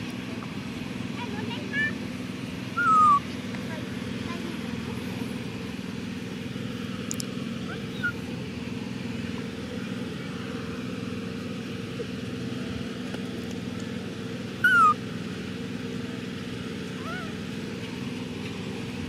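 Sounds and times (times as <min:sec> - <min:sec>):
baby monkey high call: 0:02.7 - 0:03.3, 0:07.6 - 0:08.2, 0:14.6 - 0:15.0, 0:17.0 - 0:17.4.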